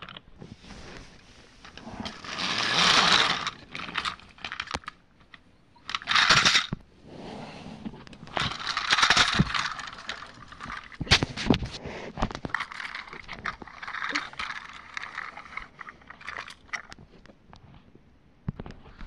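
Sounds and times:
plastic toy train clattering: 1.6 - 6.8, 8.2 - 17.0.

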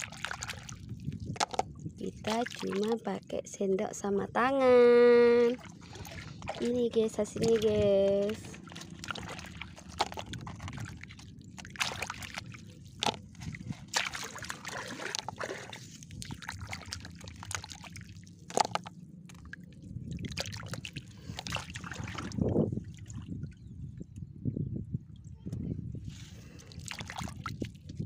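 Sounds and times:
hand splashing in shallow water: 8.6 - 18.8, 26.8 - 27.7.

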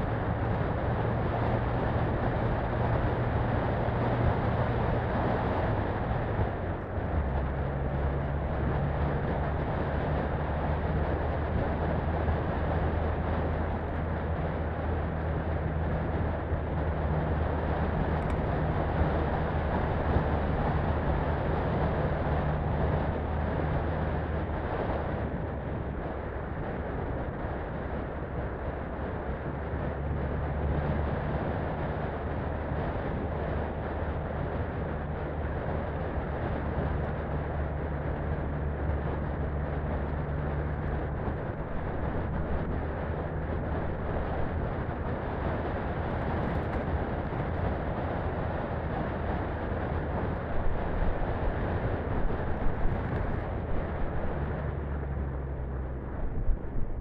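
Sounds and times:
car engine droning: 0.0 - 57.0.

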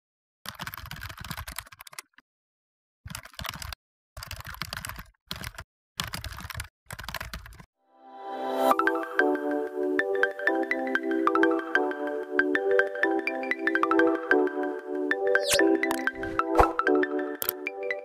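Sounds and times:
computer keyboard typing: 0.5 - 2.2, 3.1 - 7.7.

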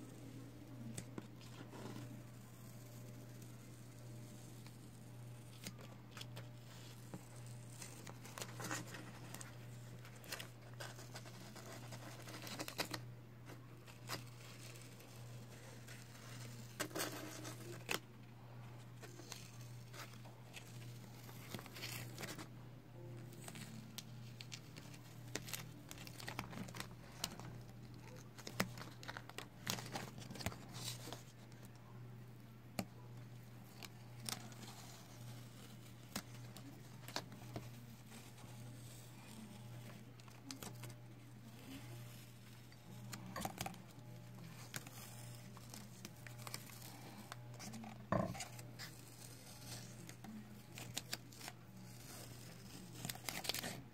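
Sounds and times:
tape crackling and crinkling: 0.0 - 53.9
tape peeling off paper: 4.3 - 13.0, 33.6 - 53.8.

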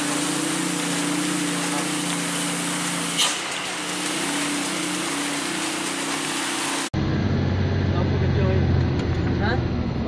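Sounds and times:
rain and tyre spray hiss: 0.0 - 6.9
truck engine drone: 0.0 - 10.0.

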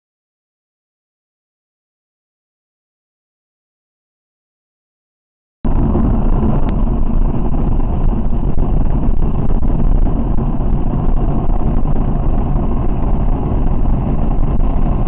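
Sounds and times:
car road and engine noise: 5.7 - 15.0.

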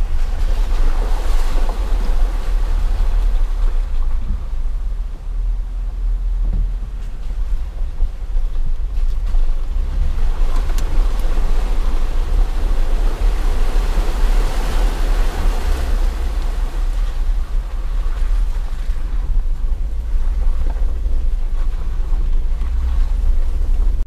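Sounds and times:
vehicle engine rumbling: 0.0 - 24.0
tyres splashing through water: 7.2 - 24.0.

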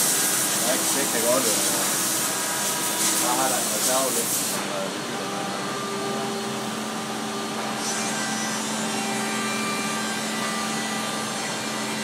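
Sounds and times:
cutter hissing on wood: 0.0 - 4.8
constant machine hum: 0.0 - 12.0
router milling wood: 0.0 - 12.0.

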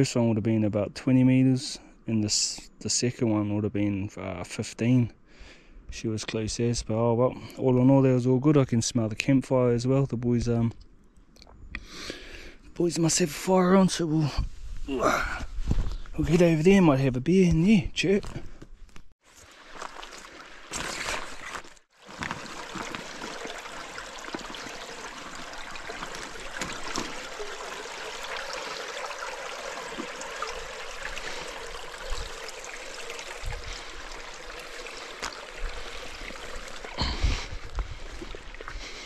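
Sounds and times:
stream trickling over rocks: 19.2 - 39.0.

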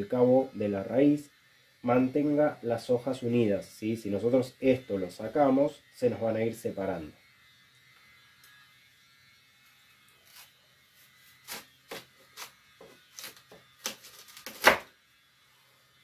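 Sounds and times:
knife crunching through fennel: 10.2 - 14.9.

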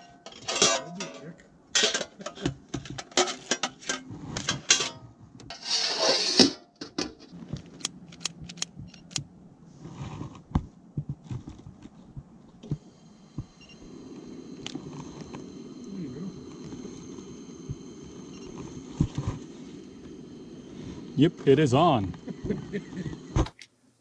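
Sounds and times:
metal tray clattering: 0.0 - 7.3
gas stove hissing: 5.5 - 6.6, 12.6 - 23.5.

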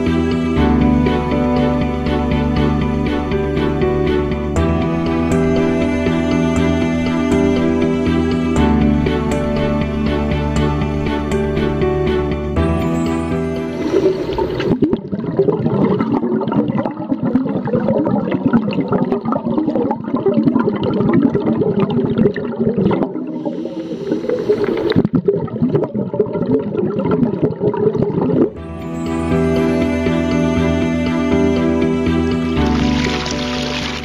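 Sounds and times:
underwater gurgling and bubbling: 13.6 - 28.6.

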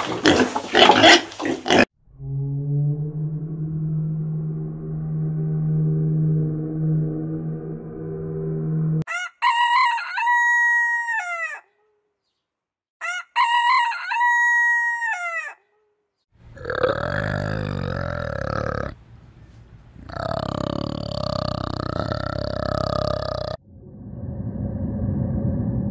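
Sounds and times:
low rough animal call: 2.0 - 9.0, 16.4 - 25.9
rooster crowing: 9.1 - 11.7, 13.0 - 15.6.

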